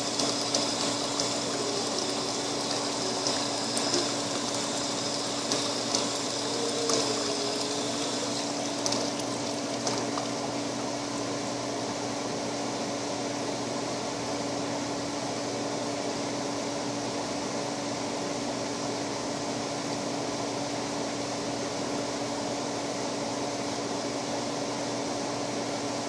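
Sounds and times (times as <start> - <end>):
machine hum and hiss: 0.0 - 26.0.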